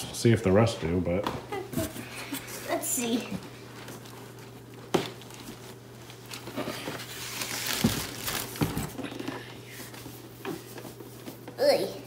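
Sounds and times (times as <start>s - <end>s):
plastic packaging crinkling: 3.7s - 9.2s.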